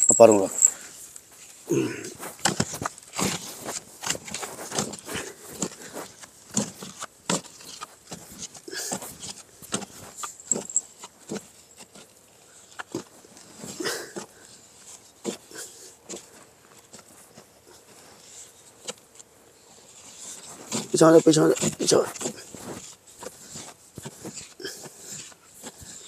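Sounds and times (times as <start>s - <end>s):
digging stick striking sandy soil: 1.8s - 15.5s, 19.9s - 26.0s.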